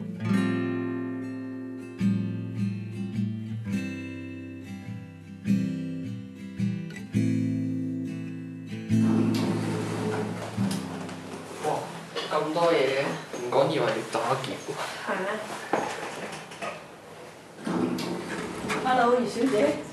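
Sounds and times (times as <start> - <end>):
acoustic guitar strumming chords: 0.0 - 12.7, 17.7 - 19.9.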